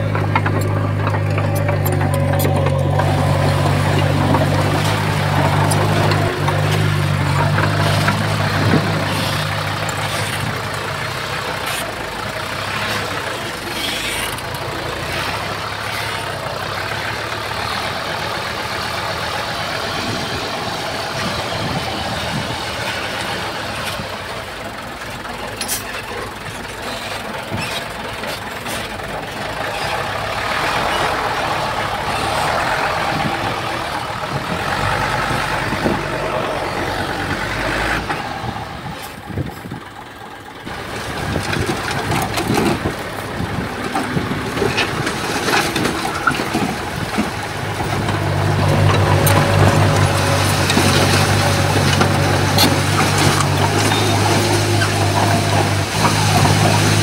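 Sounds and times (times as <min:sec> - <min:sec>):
metal clanks and knocks: 0:00.0 - 0:10.6, 0:43.9 - 0:57.0
heavy diesel machinery running: 0:00.0 - 0:57.0.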